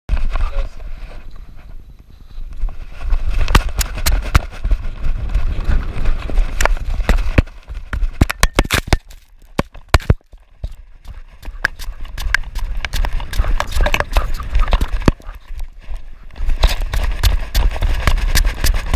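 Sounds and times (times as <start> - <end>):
fur rubbing microphone: 0.1 - 8.2, 10.7 - 18.9
wind rumble on microphone: 0.1 - 8.3
camera knocks and clatter: 6.5 - 14.1.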